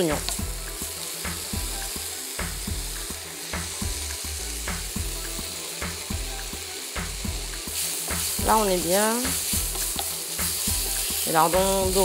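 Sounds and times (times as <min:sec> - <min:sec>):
bacon sizzling in a frying pan: 0:00.0 - 0:12.0.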